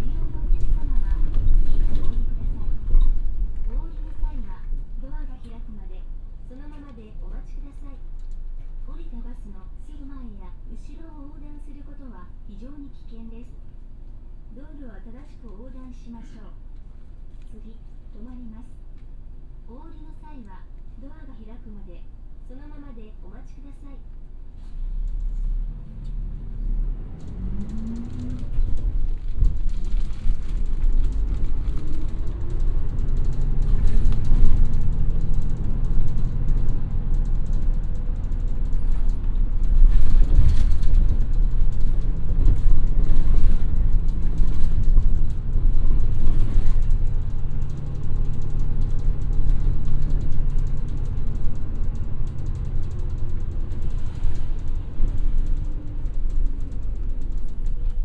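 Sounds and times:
bus engine and road rumble: 0.0s - 58.0s
bus interior rattles and creaks: 0.0s - 58.0s
engine whine rising: 24.9s - 39.6s.

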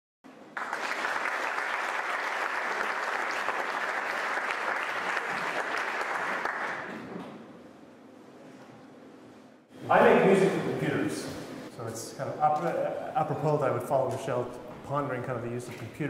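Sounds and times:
audience applauding: 0.5s - 7.0s.

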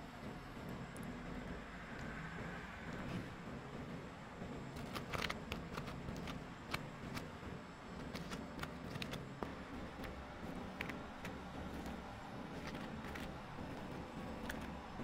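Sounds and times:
low steady background hum: 0.0s - 15.0s.

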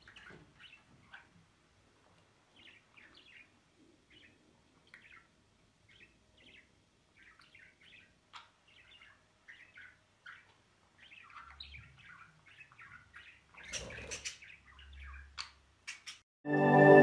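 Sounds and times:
budgerigar chirping: 5.9s - 16.2s.

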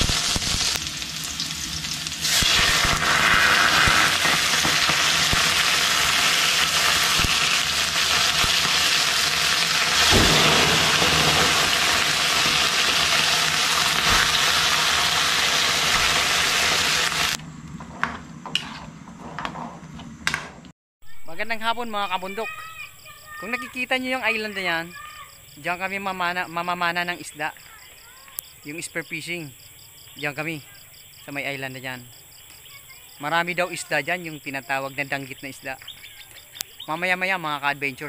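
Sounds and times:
food sizzling in a wok: 0.0s - 17.4s.

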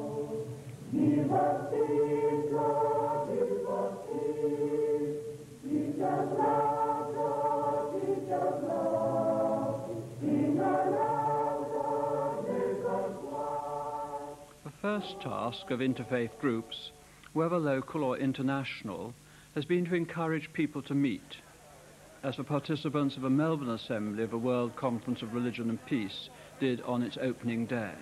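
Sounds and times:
choir singing: 0.0s - 16.9s.

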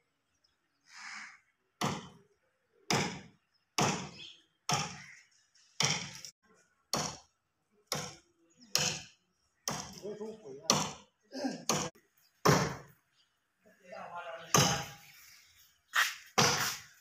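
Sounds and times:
axe chopping tree trunk: 1.8s - 2.2s, 2.9s - 5.0s, 5.8s - 6.2s, 6.9s - 7.3s, 7.9s - 10.0s, 10.7s - 11.1s, 11.7s - 12.9s, 14.5s - 14.8s, 16.4s - 16.6s.

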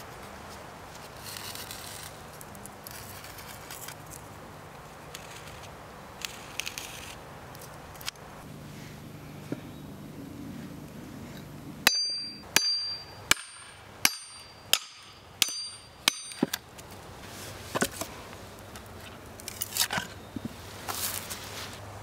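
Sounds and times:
hammer striking hatchet head: 11.9s - 16.6s.

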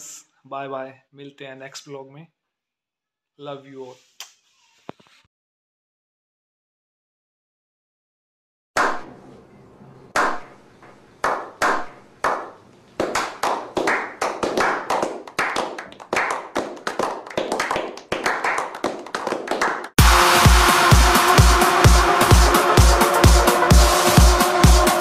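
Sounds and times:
people clapping: 11.2s - 25.0s
dance music with steady beat: 16.6s - 25.0s.

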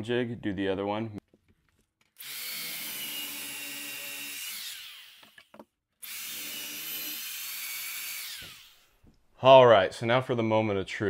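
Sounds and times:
drill boring into wood: 2.2s - 8.9s.

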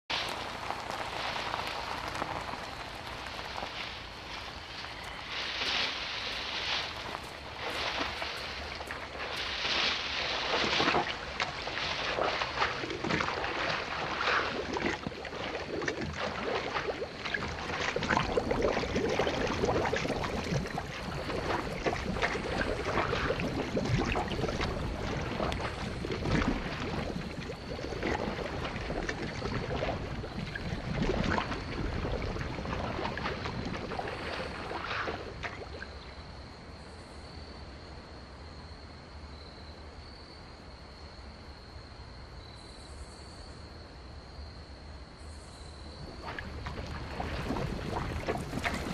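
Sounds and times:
water gulps and splashes: 0.1s - 36.2s, 45.9s - 48.9s
mud gurgling and bubbling: 0.1s - 36.4s, 45.8s - 48.9s.

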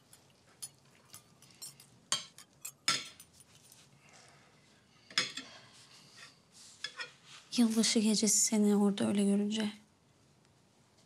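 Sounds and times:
cutlery clinking on plates: 0.0s - 3.8s, 5.1s - 5.5s.

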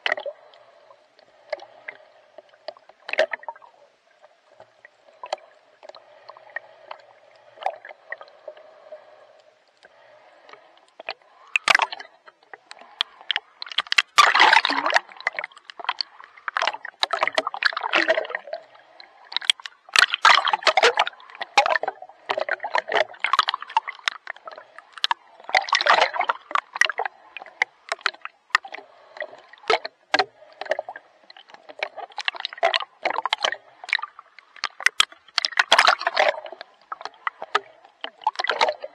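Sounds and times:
water splashing from swimming strokes: 12.8s - 18.7s, 19.3s - 31.0s, 31.6s - 38.9s.

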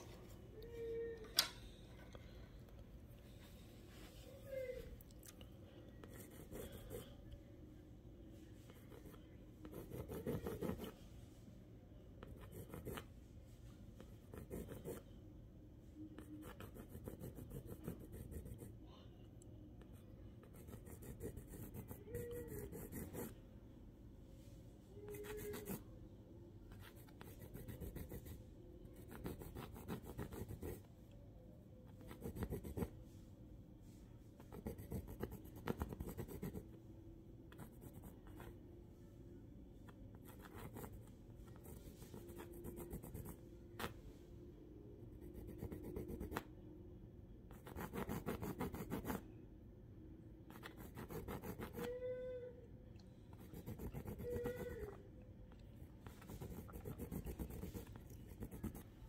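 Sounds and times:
pencil scratching on paper: 6.0s - 7.2s, 8.7s - 11.0s, 12.2s - 13.1s, 14.2s - 15.1s, 16.2s - 18.8s, 20.4s - 23.4s, 25.0s - 25.8s, 26.7s - 28.4s, 29.0s - 30.9s, 32.0s - 33.0s, 34.4s - 36.7s, 37.5s - 38.5s, 40.2s - 43.9s, 45.1s - 46.5s, 47.5s - 49.2s, 50.5s - 51.9s, 53.3s - 55.0s, 56.0s - 59.0s.

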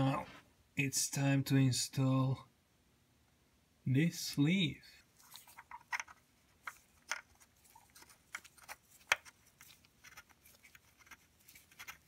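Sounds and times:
small clicks and light scraping: 5.2s - 12.0s.

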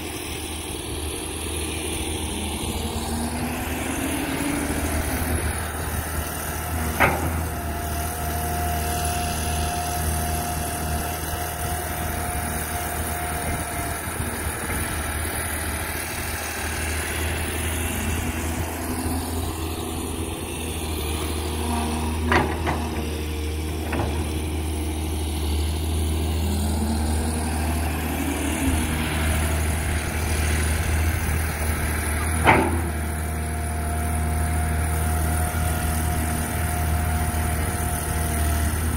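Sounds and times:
excavator diesel engine running: 0.0s - 38.9s.

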